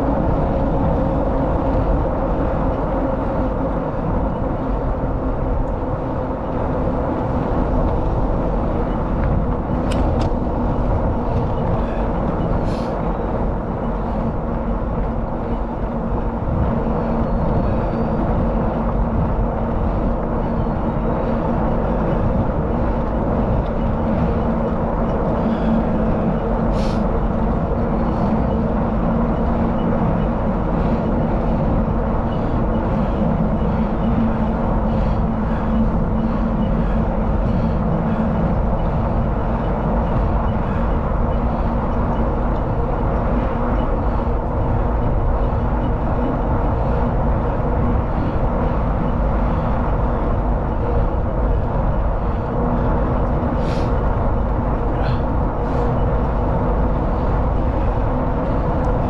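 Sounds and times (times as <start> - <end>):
bicycle tyres rolling on pavement: 0.0 - 59.0
faint steady hum: 0.0 - 59.0
wind rush on microphone: 0.0 - 59.0.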